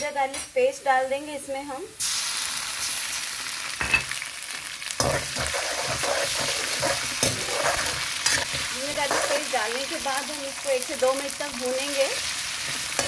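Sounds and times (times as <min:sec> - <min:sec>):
onions sizzling in hot oil: 0:00.6 - 0:13.0
utensil scraping a pan: 0:05.0 - 0:09.6.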